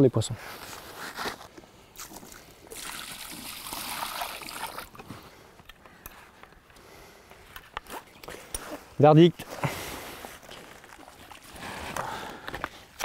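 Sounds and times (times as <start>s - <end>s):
water splashing and streaming: 2.7s - 5.0s.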